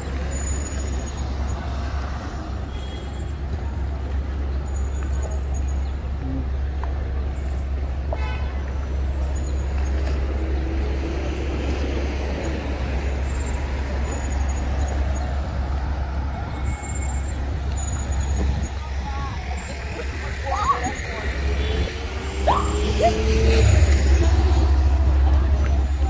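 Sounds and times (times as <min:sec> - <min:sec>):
low traffic rumble: 0:00.0 - 0:26.0
vehicle passing: 0:18.9 - 0:26.0.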